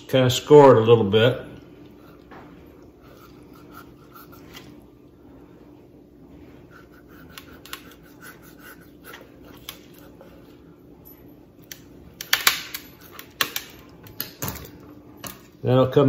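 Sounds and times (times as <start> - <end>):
knife scratching raw chicken: 2.9 - 4.8, 6.4 - 10.5.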